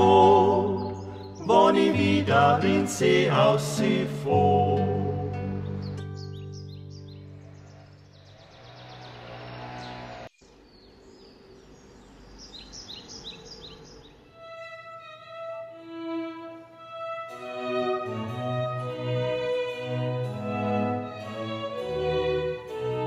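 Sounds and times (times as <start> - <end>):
orchestral string music: 0.0 - 8.4, 14.3 - 23.0
birds chirping: 0.0 - 15.6.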